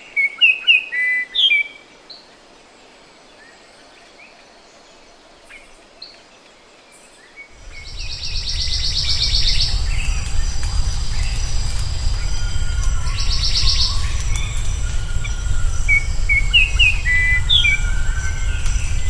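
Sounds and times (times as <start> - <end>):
bird trill: 7.6 - 19.0
faint thin whistles: 7.6 - 19.0
steady low rumble: 7.6 - 19.0.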